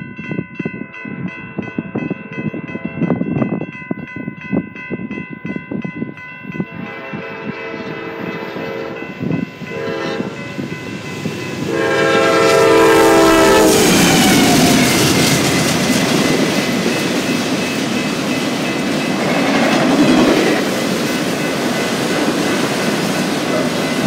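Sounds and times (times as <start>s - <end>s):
locomotive horn blasts: 6.8s - 10.5s, 11.6s - 15.1s
train wheels clacking over rails: 6.9s - 24.0s.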